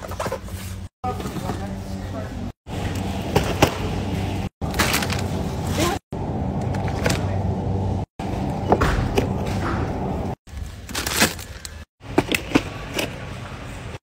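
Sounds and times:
shopping cart rolling and rattling: 4.6s - 6.0s.

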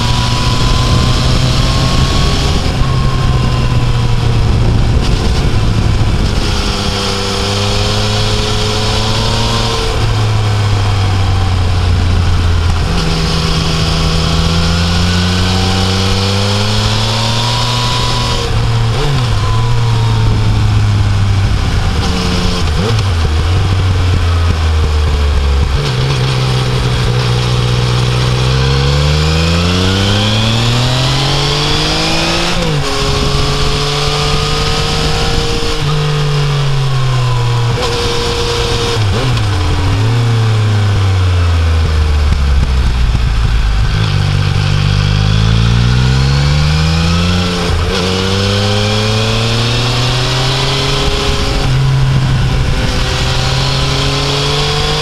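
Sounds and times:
motorcycle engine accelerating: 0.0s - 55.0s
wind and road noise: 0.0s - 55.0s.

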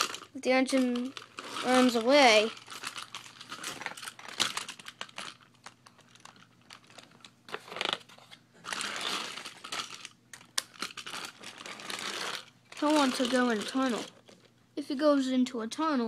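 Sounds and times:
rustling handling noise: 0.0s - 14.6s
toy engine clicking on track: 12.0s - 14.1s.

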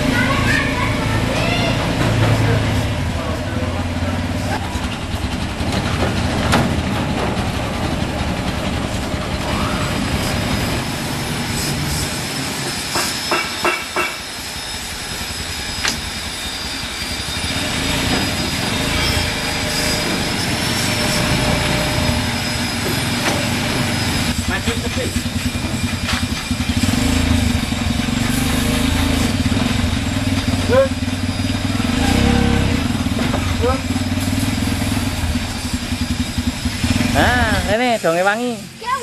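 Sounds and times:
vehicle engine running: 0.0s - 12.2s, 13.6s - 39.0s
steady high whine: 7.0s - 39.0s.

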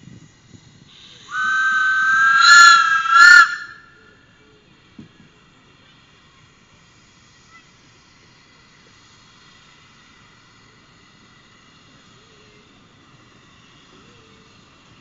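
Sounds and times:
miniature steam train running: 0.0s - 15.0s.

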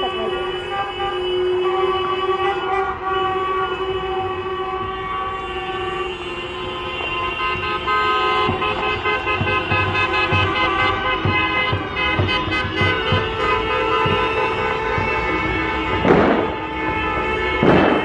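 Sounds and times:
car horns honking: 0.0s - 18.0s
low thumps: 8.4s - 18.0s.

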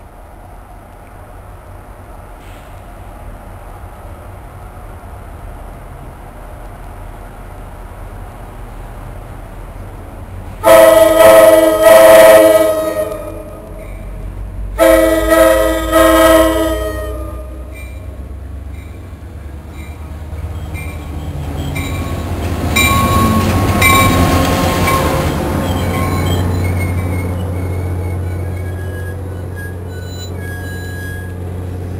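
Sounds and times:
locomotive engine and wheels rumbling: 0.0s - 31.9s
locomotive air horn blasts: 10.6s - 13.8s, 14.8s - 17.7s.

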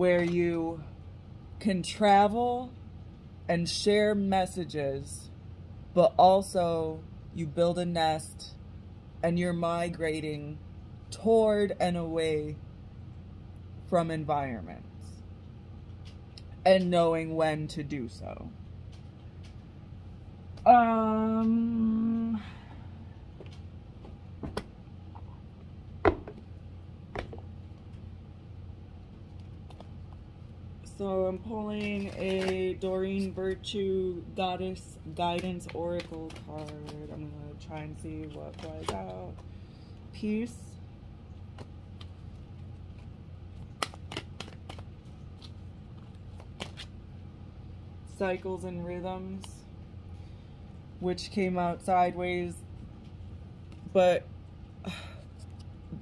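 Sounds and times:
steady low hum: 0.0s - 56.0s
woman humming: 20.7s - 22.7s
cards being shuffled: 29.1s - 30.3s, 31.4s - 33.8s, 34.5s - 39.6s, 41.3s - 47.0s, 55.2s - 56.0s.

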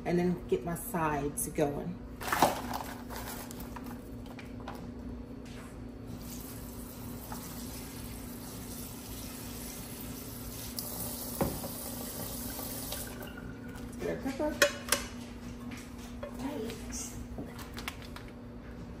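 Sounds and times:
faucet water running: 6.1s - 14.0s.

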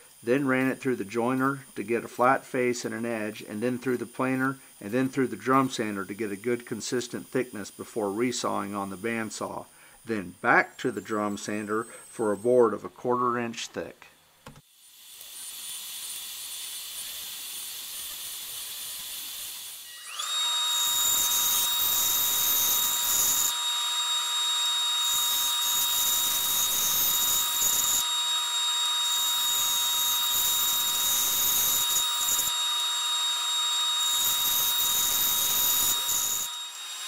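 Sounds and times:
bandsaw whining: 15.2s - 37.0s
bandsaw cutting wood: 15.3s - 37.0s
drum sander running: 19.9s - 37.0s.

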